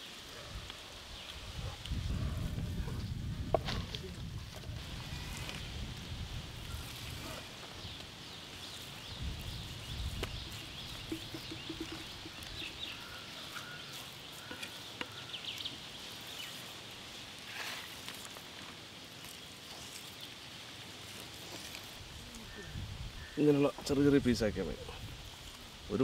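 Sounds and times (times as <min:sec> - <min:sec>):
birds chirping: 0:06.6 - 0:17.2.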